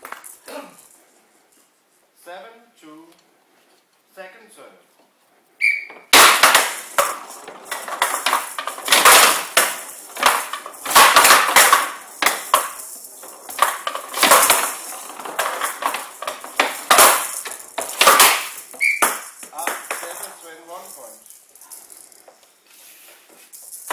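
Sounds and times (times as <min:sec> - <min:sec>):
bats hitting ball: 0:05.6 - 0:20.2
rattling ball clattering on table: 0:06.1 - 0:22.4, 0:23.3 - 0:23.9.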